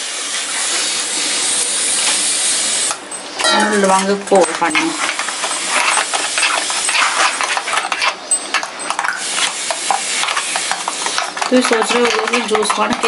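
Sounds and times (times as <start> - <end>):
spoon stirring liquid in metal jar: 3.4 - 13.0.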